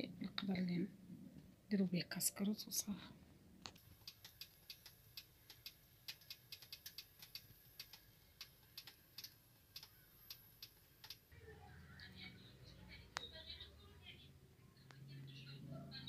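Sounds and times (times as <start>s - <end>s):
faint ticking and clicking: 3.6s - 11.3s.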